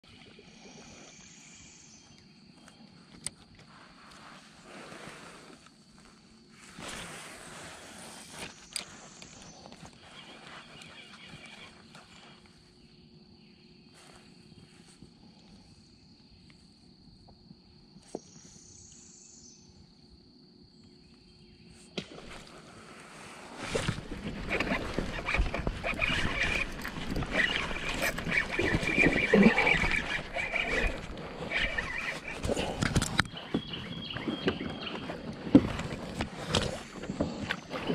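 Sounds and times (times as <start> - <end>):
water sloshing against kayak hull: 22.0 - 37.9.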